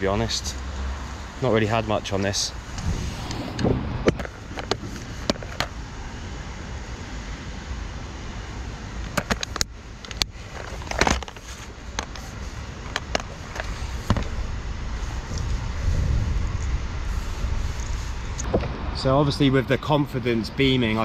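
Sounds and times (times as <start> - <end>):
low rumble: 2.5 - 6.0, 13.7 - 19.1.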